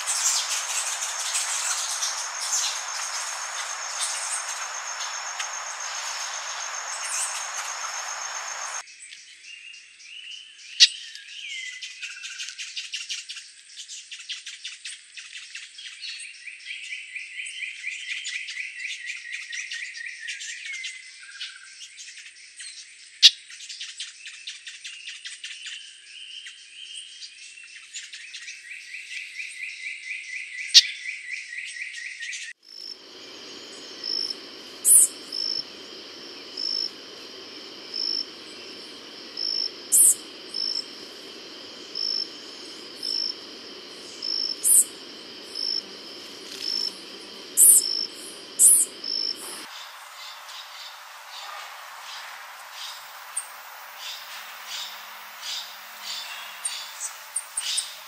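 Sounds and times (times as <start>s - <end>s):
high bird chirps: 0.0s - 8.8s, 33.2s - 52.2s
rapid insect trill: 0.0s - 8.8s, 32.6s - 58.0s.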